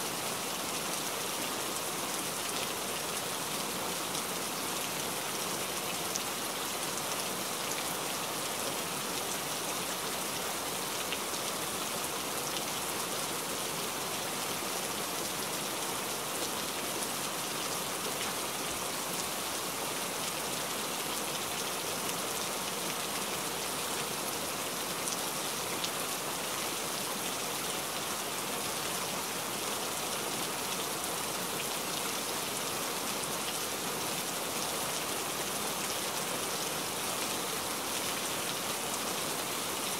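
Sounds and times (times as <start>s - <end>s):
rain falling on foliage: 0.0s - 39.9s.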